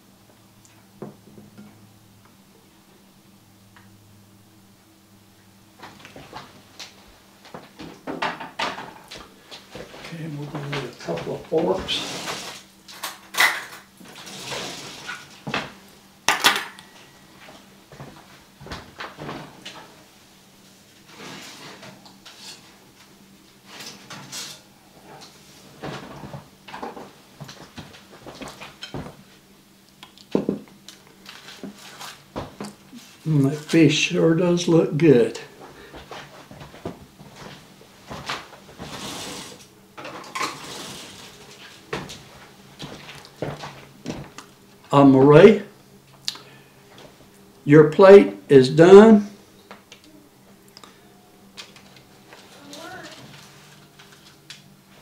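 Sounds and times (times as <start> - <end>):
drawer shutting: 11.5 - 12.7, 13.4 - 15.7.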